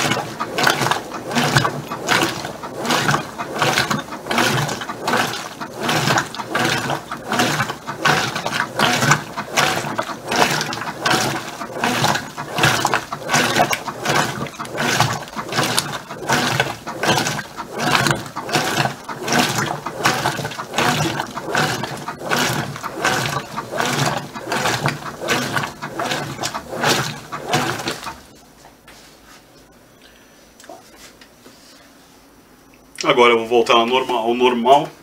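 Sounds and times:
washing machine agitating: 0.0s - 29.6s, 33.0s - 35.0s.

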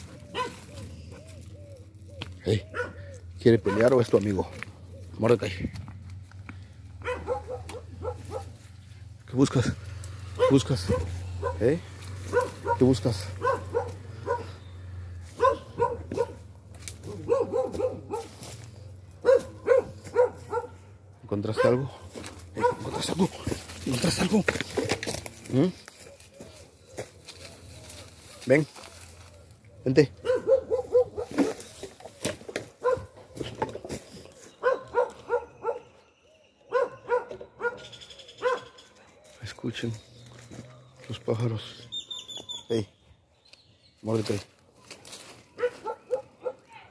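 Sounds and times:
dog barking: 0.3s - 0.8s, 2.7s - 4.0s, 7.0s - 8.7s, 10.3s - 14.6s, 15.3s - 23.3s, 30.2s - 31.6s, 32.8s - 33.4s, 34.6s - 36.0s, 36.6s - 38.8s, 45.5s - 46.9s.

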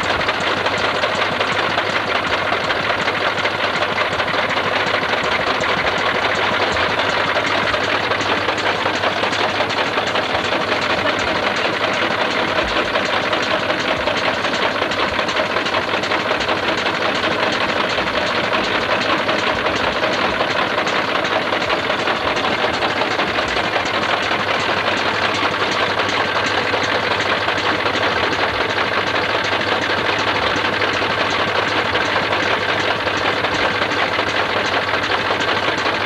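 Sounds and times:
tractor engine idling: 0.0s - 36.0s.

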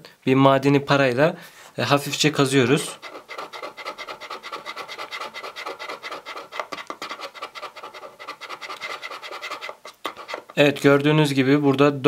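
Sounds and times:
coin scraping a label: 2.8s - 10.6s.

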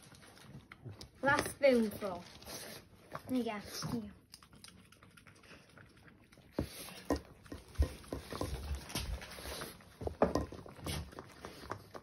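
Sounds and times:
dog licking a spoon: 2.8s - 12.0s.

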